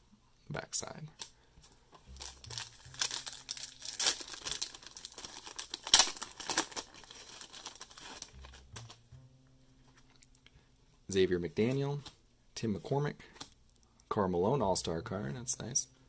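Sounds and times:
cards being handled: 1.2s - 9.0s, 11.6s - 12.2s
wrapper crinkling and tearing: 2.0s - 9.0s.

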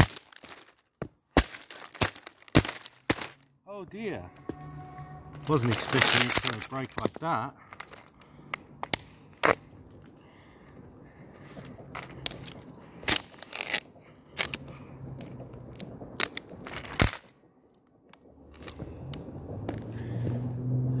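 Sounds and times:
plastic cracking and knocking: 0.0s - 3.4s, 5.4s - 7.2s
low steady hum: 3.1s - 21.0s.

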